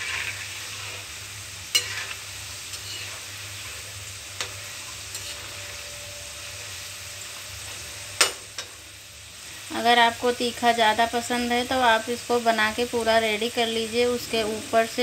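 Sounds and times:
peanuts sizzling in hot oil: 0.0s - 15.0s.

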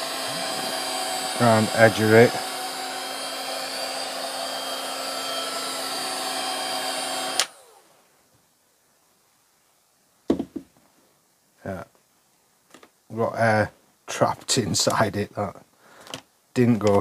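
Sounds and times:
fan whirring down: 0.0s - 8.0s
heat gun fan rush with whine: 0.0s - 8.0s.

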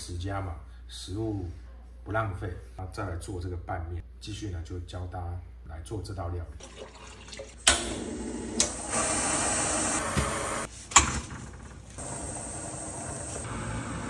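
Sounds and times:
water pouring into metal pot: 6.6s - 7.7s.

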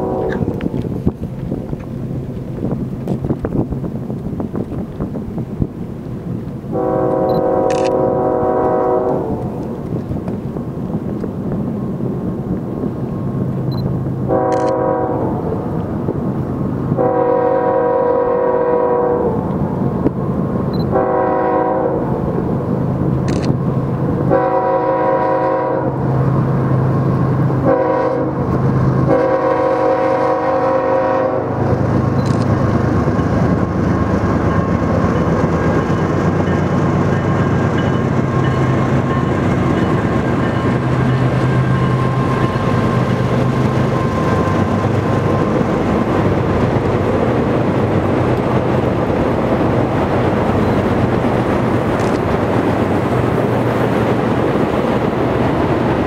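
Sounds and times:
train air horn blasts: 0.0s - 0.7s, 6.7s - 9.6s, 14.3s - 15.6s, 17.0s - 19.4s, 20.9s - 22.2s, 24.3s - 26.0s, 27.6s - 31.8s
train rumbling and clattering: 0.0s - 56.0s.

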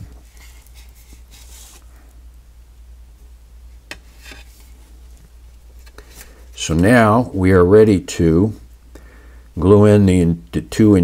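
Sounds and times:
soft plastic rustling: 0.0s - 2.4s, 3.8s - 7.3s
steady low hum: 0.0s - 11.0s.

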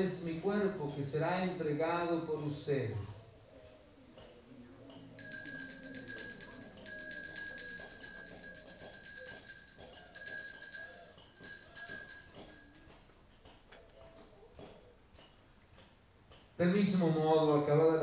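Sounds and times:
small hand bells jingling: 5.2s - 12.9s.

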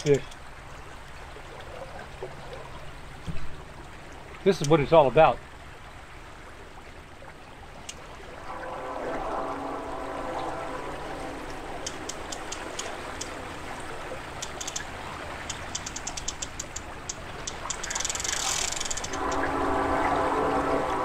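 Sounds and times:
river water hiss: 0.0s - 1.3s, 2.9s - 21.0s
fishing reel clicking: 14.4s - 14.9s, 15.5s - 19.4s.

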